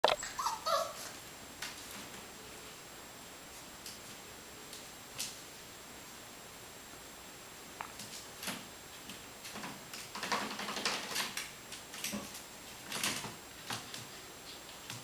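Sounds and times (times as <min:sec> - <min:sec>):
puppy scrambling in plastic basket: 0:09.5 - 0:14.1.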